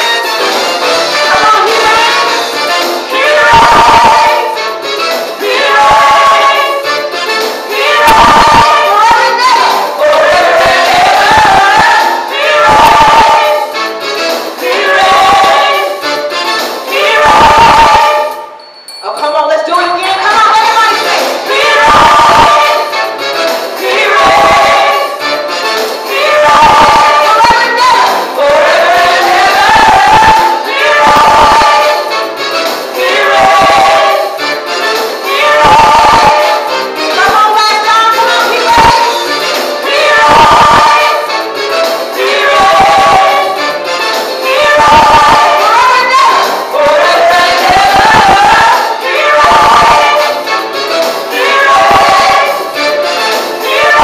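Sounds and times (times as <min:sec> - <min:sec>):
musical accompaniment: 0:00.0 - 0:18.7, 0:19.8 - 0:54.0
women singing gospel song: 0:01.2 - 0:02.4, 0:03.0 - 0:04.6, 0:05.4 - 0:07.0, 0:07.6 - 0:13.8, 0:14.6 - 0:16.1, 0:16.8 - 0:18.5, 0:20.2 - 0:23.0, 0:23.8 - 0:25.3, 0:26.1 - 0:32.2, 0:32.9 - 0:34.4, 0:35.2 - 0:41.4, 0:42.1 - 0:43.7, 0:44.4 - 0:50.5, 0:51.3 - 0:52.9, 0:53.6 - 0:54.0.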